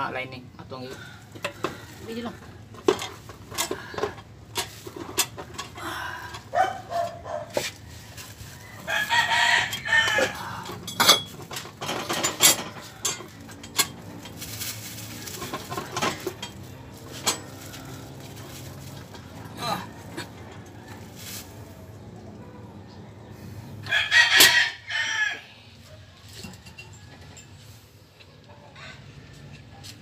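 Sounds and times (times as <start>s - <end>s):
rooster crowing: 6.0s - 10.8s, 22.7s - 27.5s.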